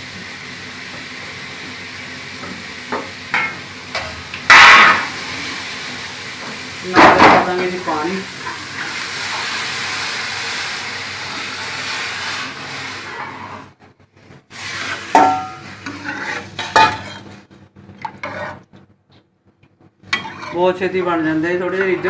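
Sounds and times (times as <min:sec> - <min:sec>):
water hissing in hot pan: 0:04.5 - 0:13.8, 0:14.5 - 0:16.6.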